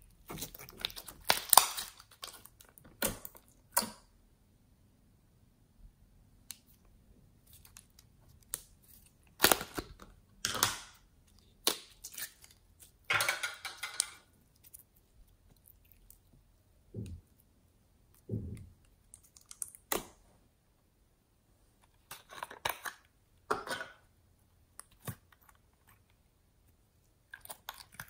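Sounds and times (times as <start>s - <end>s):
slime clicking and squelching: 0.0s - 4.0s, 7.4s - 13.1s, 17.0s - 20.2s, 27.2s - 28.0s.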